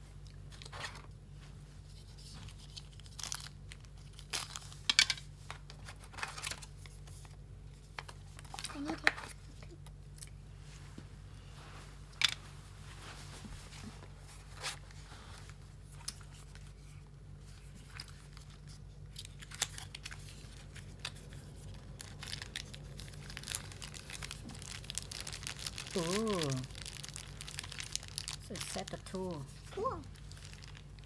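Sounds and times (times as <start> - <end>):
steady low hum: 0.0 - 31.0
plastic bag crinkling: 2.6 - 4.9, 17.8 - 31.0.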